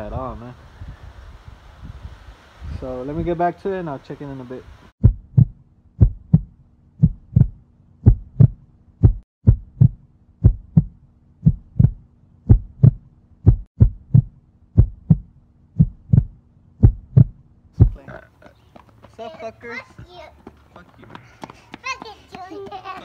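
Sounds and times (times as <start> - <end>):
heartbeat thumps: 5.0 - 18.2.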